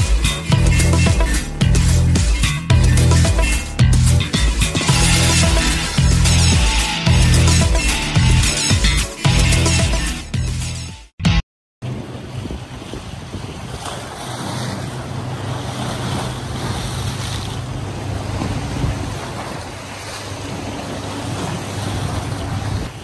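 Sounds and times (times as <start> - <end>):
wind rumbling on microphone: 11.8 - 23.0
waves washing against rocks: 11.9 - 23.0.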